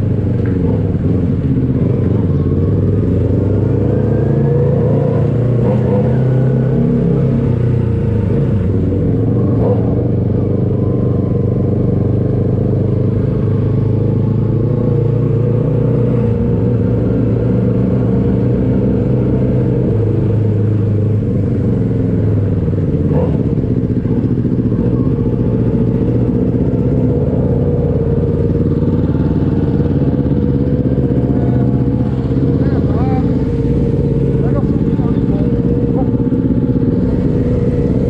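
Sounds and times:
motorcycle engine running: 0.0s - 38.0s.

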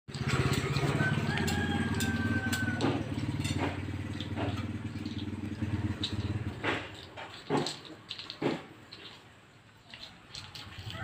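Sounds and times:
small engine idling: 0.1s - 11.0s.

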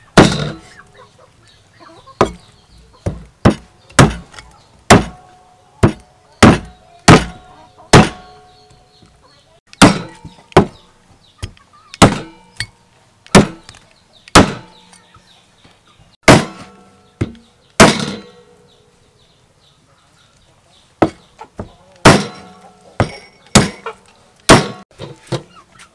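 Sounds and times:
cleaver chopping on wooden block: 2.2s - 4.3s, 4.9s - 5.2s, 5.8s - 8.3s, 9.7s - 10.8s, 11.4s - 12.7s, 13.3s - 13.6s, 14.3s - 14.7s, 22.0s - 22.4s, 23.0s - 23.8s.

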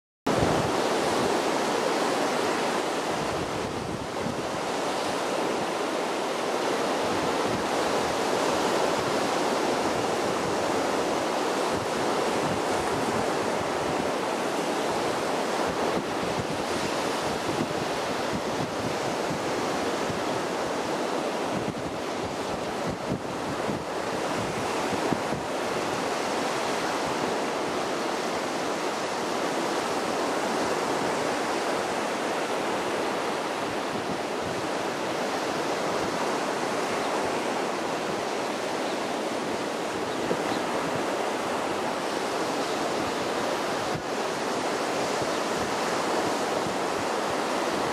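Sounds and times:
wind buffeting microphone: 0.3s - 1.4s, 7.0s - 27.5s
small waves breaking on sand: 0.3s - 47.9s.

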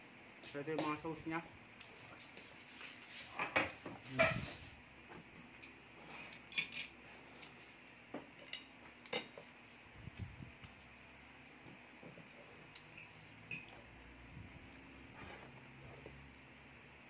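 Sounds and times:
tableware clattering: 3.4s - 4.6s, 5.4s - 7.0s.

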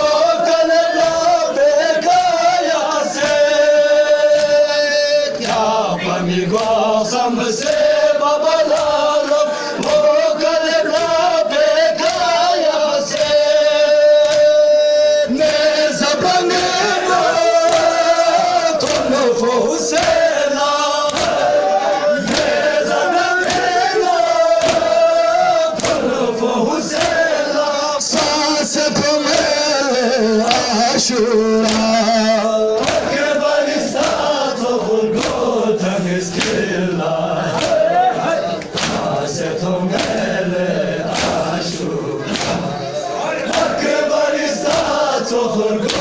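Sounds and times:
men chanting in unison: 0.0s - 46.0s
chest-beating slaps: 4.3s - 4.7s, 21.0s - 21.5s, 22.2s - 22.6s, 23.4s - 23.8s, 24.5s - 25.0s, 25.7s - 26.1s, 31.6s - 32.0s, 32.8s - 33.2s, 33.9s - 34.4s, 35.2s - 35.5s, 36.3s - 36.7s, 37.5s - 37.9s, 38.6s - 39.2s, 39.9s - 40.4s, 41.0s - 41.6s, 42.2s - 42.8s, 43.5s - 43.8s.

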